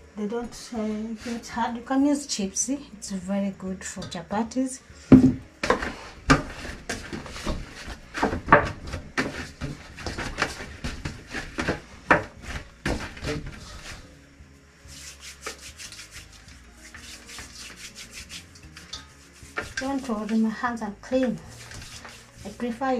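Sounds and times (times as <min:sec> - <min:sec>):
hands kneading dough in a bowl: 0:05.8 - 0:14.1, 0:14.9 - 0:22.9.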